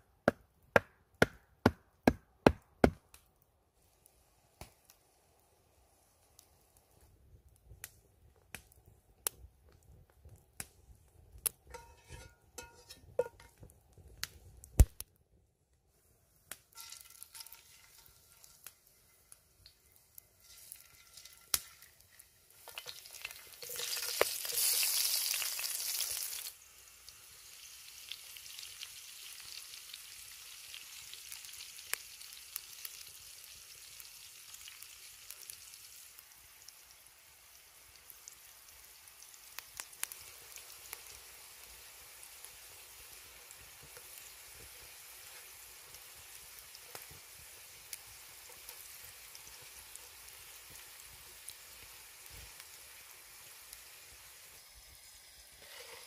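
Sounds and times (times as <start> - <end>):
sharp pops and crackles: 6.3 - 15.8, 16.4 - 26.5, 39.3 - 41.8, 43.5 - 52.8
potatoes sizzling in hot oil: 11.7 - 13.6, 16.5 - 56.0.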